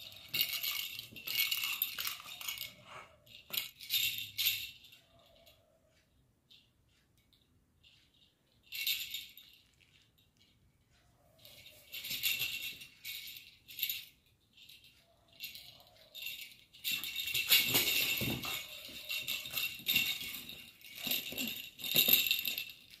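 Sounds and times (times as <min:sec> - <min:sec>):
plastic rattle toy shaking: 0:00.0 - 0:05.5, 0:11.4 - 0:23.0.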